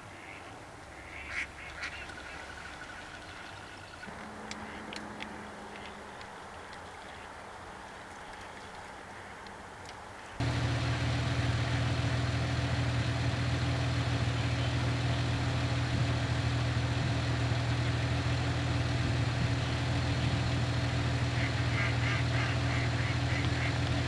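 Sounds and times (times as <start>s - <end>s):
loud steady low hum: 4.1s - 7.0s, 10.4s - 24.0s.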